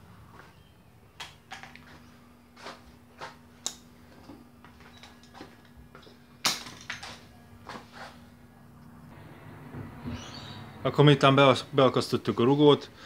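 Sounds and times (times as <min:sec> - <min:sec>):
faint steady hum: 0:00.0 - 0:13.0
tools and parts clicking and knocking: 0:01.2 - 0:02.0, 0:06.4 - 0:07.2.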